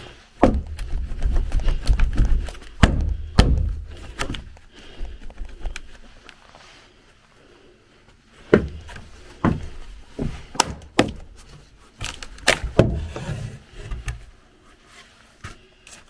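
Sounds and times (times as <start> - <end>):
hollow wooden knocks: 0.4 - 4.5, 8.5 - 11.3, 12.6 - 14.2.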